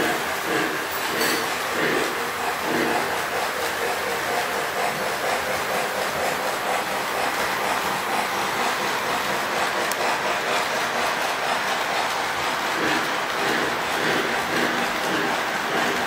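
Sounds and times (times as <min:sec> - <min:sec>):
model train running on track: 0:00.0 - 0:16.0.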